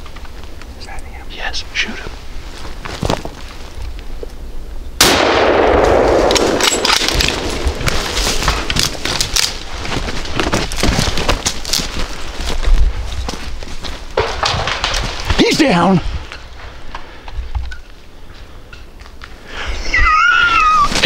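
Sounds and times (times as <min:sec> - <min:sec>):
gunshot ringing: 0:05.0 - 0:07.9
cracks and knocks: 0:06.3 - 0:12.1, 0:14.2 - 0:15.5.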